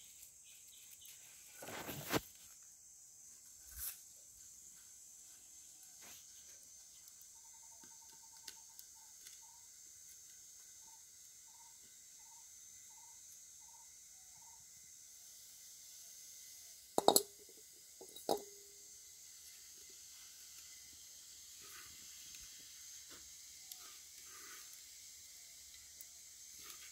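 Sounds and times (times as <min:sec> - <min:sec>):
high insect buzz: 0:00.0 - 0:26.9
metal pot lid clanking: 0:17.0 - 0:17.4, 0:18.0 - 0:18.5.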